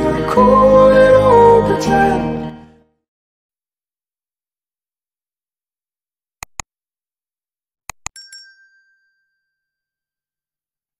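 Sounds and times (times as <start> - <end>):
quick mouse clicks: 6.4 - 6.7
bright bell ding: 8.1 - 10.2.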